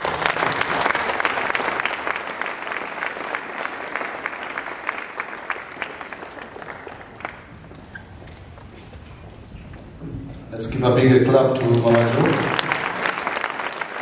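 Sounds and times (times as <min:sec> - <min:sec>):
audience applauding: 0:00.0 - 0:08.0, 0:11.4 - 0:14.0.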